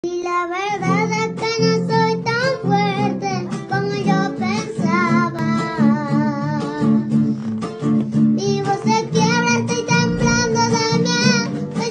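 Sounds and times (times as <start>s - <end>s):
plucked acoustic guitar: 0.2s - 11.9s
high voice singing with vibrato: 8.4s - 11.9s.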